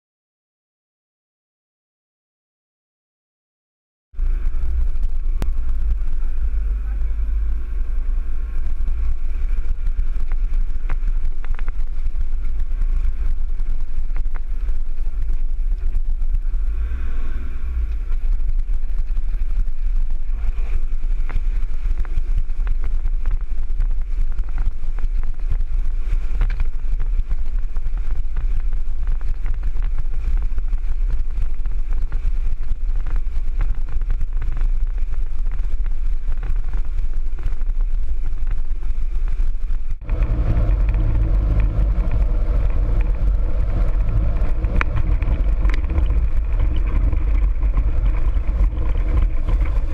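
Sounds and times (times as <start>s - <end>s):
engine wind and tyre rumble: 4.1s - 49.9s
knocks and rattles: 40.0s - 49.9s
water pushing against vehicle: 40.0s - 49.9s.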